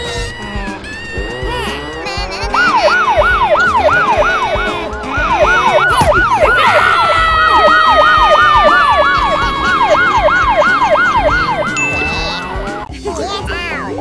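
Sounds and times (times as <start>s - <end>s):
steady siren tone sliding down: 0.0s - 12.9s
police siren fast sweeps: 2.6s - 12.9s.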